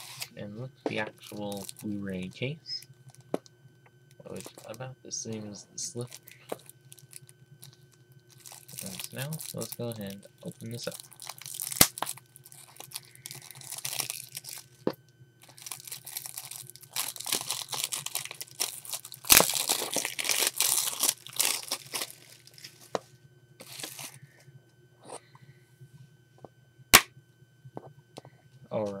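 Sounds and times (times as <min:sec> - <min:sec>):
plastic wrap tearing and crinkling: 0:00.0 - 0:00.3, 0:01.2 - 0:01.9, 0:06.0 - 0:22.9, 0:23.6 - 0:24.2
sharp plastic crack: 0:11.5 - 0:12.1.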